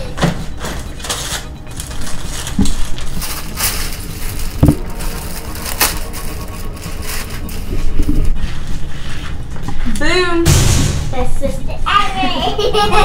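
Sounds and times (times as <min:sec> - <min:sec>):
plastic bag crinkling: 0:00.9 - 0:08.9.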